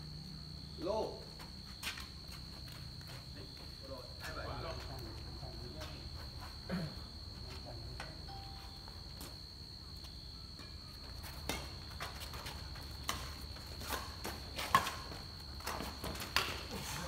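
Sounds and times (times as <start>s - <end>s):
footsteps on concrete: 1.3s - 7.7s, 8.6s - 10.2s, 11.0s - 17.0s
racket hitting shuttlecock: 11.3s - 16.6s.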